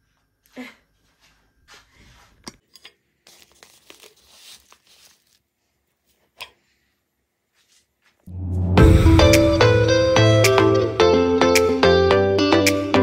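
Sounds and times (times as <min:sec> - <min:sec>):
packaging rustling and crinkling: 0:03.2 - 0:06.2
loud music: 0:08.3 - 0:13.0.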